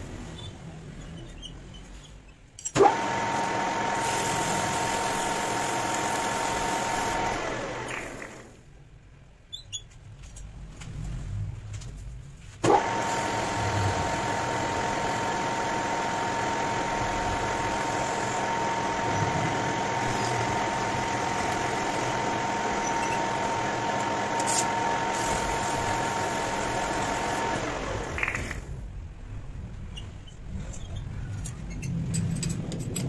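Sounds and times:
metal lathe whining: 2.8s - 8.5s, 12.7s - 28.2s.

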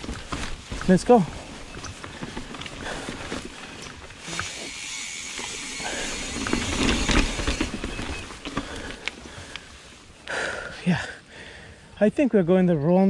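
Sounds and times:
bike rattling over rocks: 0.0s - 9.9s
bike tyres on dirt trail: 0.0s - 11.9s.

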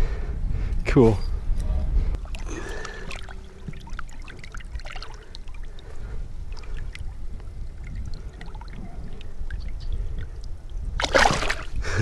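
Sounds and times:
fish splashing in water: 2.2s - 11.8s.

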